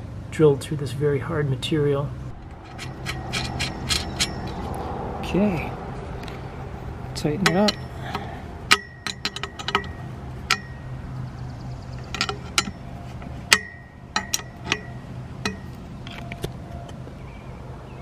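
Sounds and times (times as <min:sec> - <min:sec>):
wrench clinking on metal mast: 0:02.5 - 0:04.7, 0:07.2 - 0:11.2, 0:11.8 - 0:16.4.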